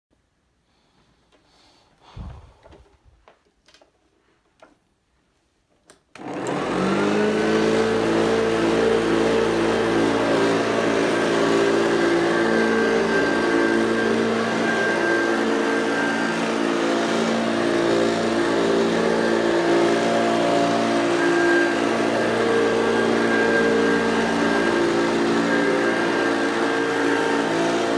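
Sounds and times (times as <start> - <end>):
vacuum cleaner motor whining: 6.1 - 27.9.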